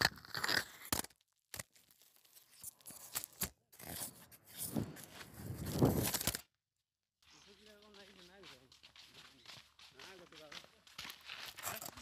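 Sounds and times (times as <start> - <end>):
elephant scraping and knocking camera: 3.8 - 6.4.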